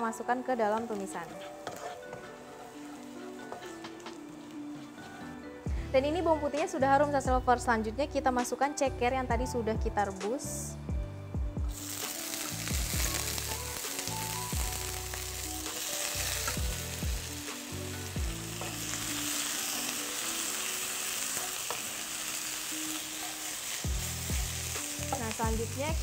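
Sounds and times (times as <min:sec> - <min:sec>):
spatula knocking and scraping pan: 0:01.3 - 0:02.4
food sizzling in hot oil: 0:11.7 - 0:26.0.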